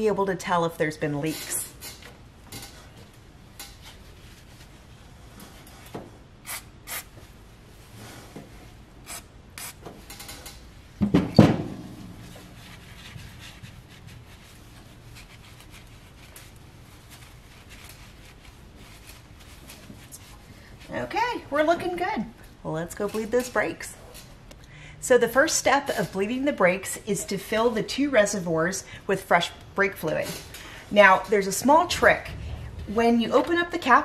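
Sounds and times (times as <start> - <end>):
rag wiping: 12.1 - 21.4.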